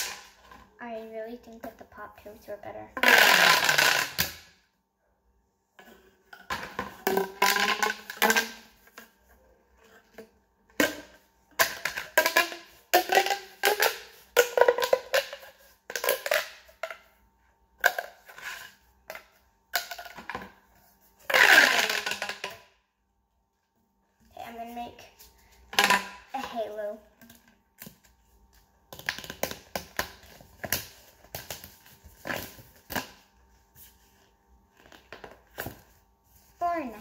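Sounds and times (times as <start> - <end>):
plastic pop tubes popping: 3.0 - 4.5, 6.4 - 9.1, 10.8 - 17.0, 17.8 - 20.5, 21.3 - 22.7, 28.9 - 33.2.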